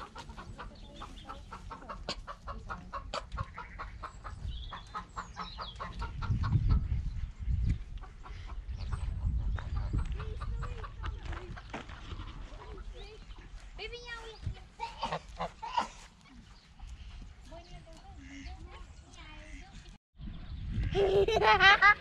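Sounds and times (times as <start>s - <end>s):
chickens clucking: 0.0s - 13.7s, 14.3s - 19.9s
low rumbling on microphone: 4.3s - 13.5s.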